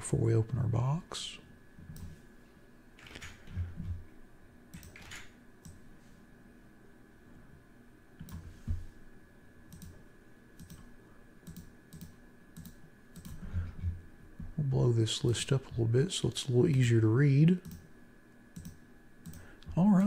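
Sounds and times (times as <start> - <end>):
mouse clicks: 9.7 - 10.0, 10.6 - 13.4, 18.6 - 19.5.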